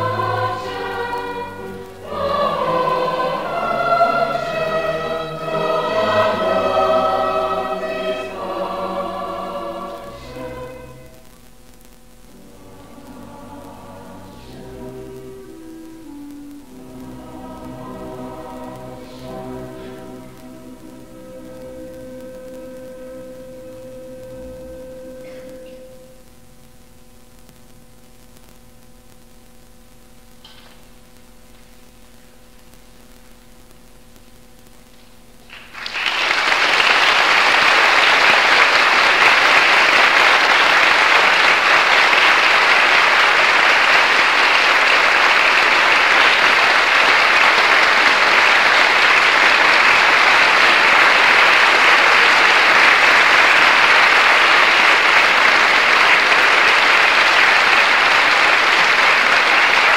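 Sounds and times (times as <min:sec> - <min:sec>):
orchestra and choir chord: 0:00.0 - 0:11.2, 0:12.3 - 0:26.2, 0:36.6 - 0:59.9
audience applause: 0:35.4 - 0:59.9.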